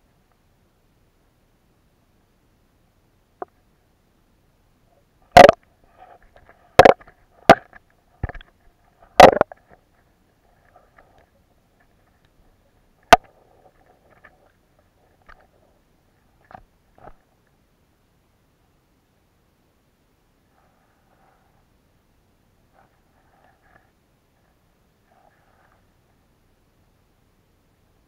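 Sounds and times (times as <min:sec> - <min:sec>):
sharp knocks underwater: 0:05.3 - 0:05.6, 0:06.8 - 0:08.4, 0:09.2 - 0:09.7, 0:13.1 - 0:13.4.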